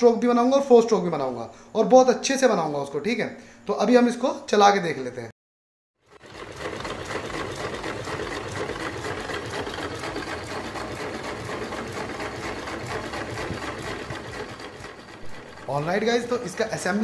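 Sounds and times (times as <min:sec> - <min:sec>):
petrol engine running: 0:06.1 - 0:17.0.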